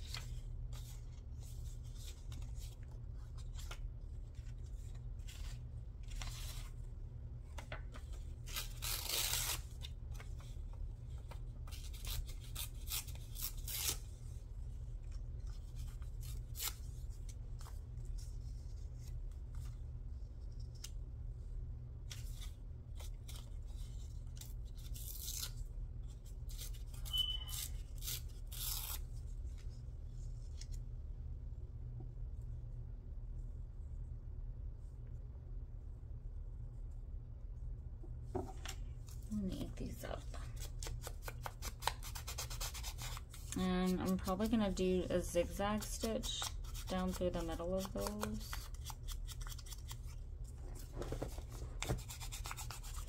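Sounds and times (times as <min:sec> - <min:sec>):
paper tearing and rustling: 0:07.6 - 0:10.5, 0:11.2 - 0:14.1, 0:22.1 - 0:25.7, 0:26.4 - 0:29.1, 0:45.8 - 0:50.2, 0:50.8 - 0:53.0.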